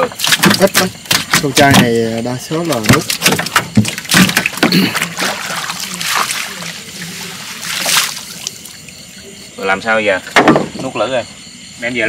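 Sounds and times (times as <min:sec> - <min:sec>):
water splashing against boat: 0:00.0 - 0:09.1.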